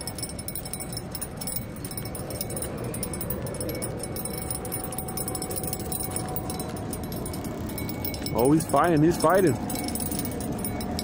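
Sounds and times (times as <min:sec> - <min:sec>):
constant background hiss: 0:00.0 - 0:11.0
fishing reel being cranked: 0:00.0 - 0:11.0.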